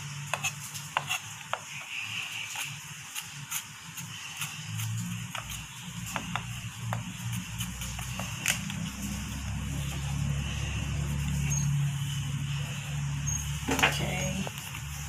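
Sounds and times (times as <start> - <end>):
low hum: 6.9 - 15.0.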